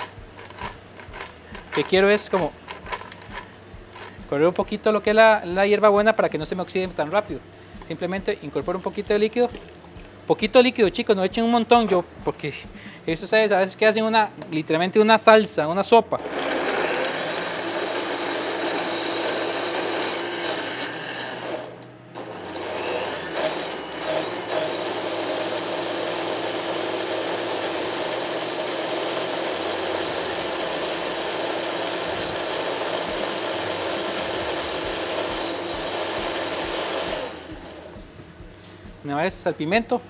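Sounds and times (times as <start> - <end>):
electric blender running: 16.2 - 38.0.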